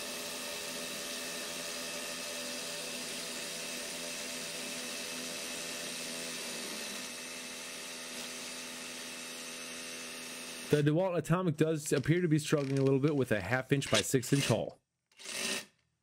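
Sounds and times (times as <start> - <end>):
hammer drills drilling into concrete: 0.0 - 10.8, 13.9 - 15.8.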